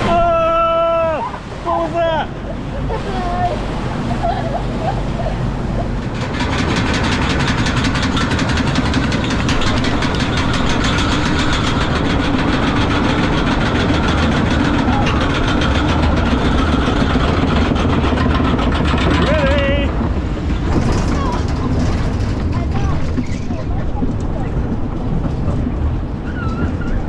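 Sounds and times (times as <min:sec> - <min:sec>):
machinery hum: 0:00.0 - 0:26.2
chain lift clicking clatter: 0:06.1 - 0:19.5.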